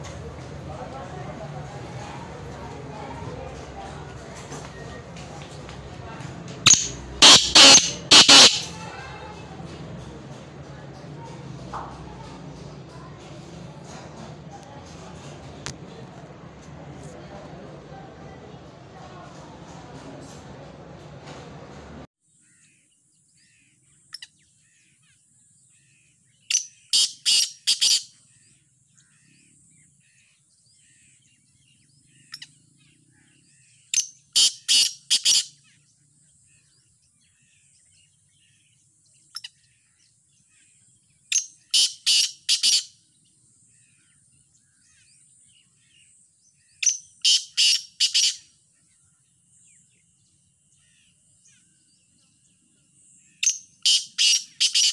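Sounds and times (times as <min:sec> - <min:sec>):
small birds twittering: 0:05.6 - 0:09.6, 0:22.2 - 0:54.9
francolin calling: 0:06.7 - 0:08.8.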